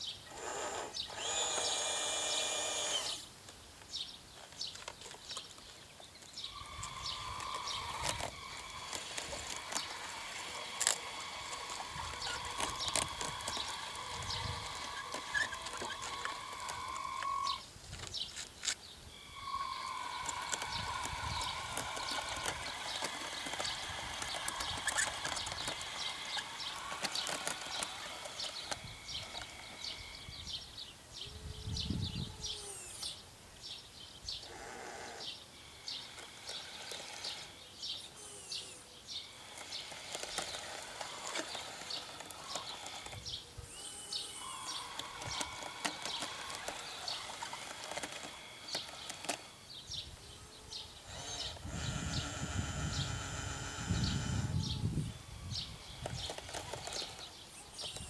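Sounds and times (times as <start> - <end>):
electric motors whining: 0.2 - 3.3, 6.4 - 18.2, 19.0 - 33.2, 34.4 - 58.0
small clicks: 1.1 - 18.8, 19.5 - 30.0, 39.4 - 49.6, 56.0 - 58.0.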